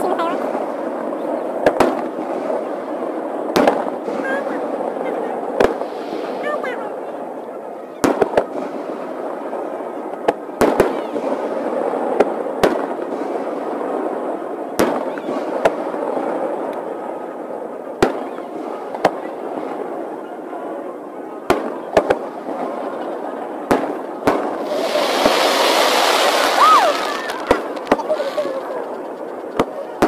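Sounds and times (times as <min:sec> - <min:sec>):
fireworks bursting: 0:00.0 - 0:30.0
steady background hiss: 0:24.0 - 0:29.6.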